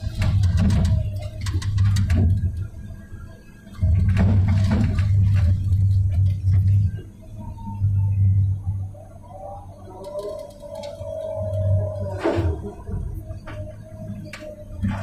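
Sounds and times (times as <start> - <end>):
excavator engine drone: 0.0 - 15.0.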